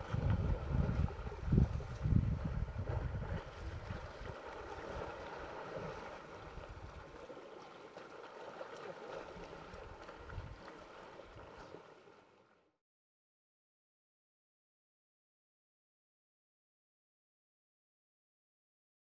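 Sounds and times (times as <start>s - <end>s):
wind buffeting microphone: 0.0s - 7.1s, 9.8s - 10.7s.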